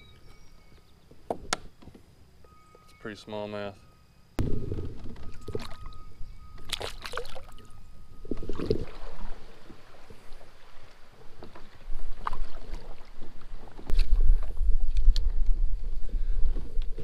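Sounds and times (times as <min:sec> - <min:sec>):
water sloshing against hull: 0:05.1 - 0:14.6
fish splashing: 0:06.6 - 0:07.7.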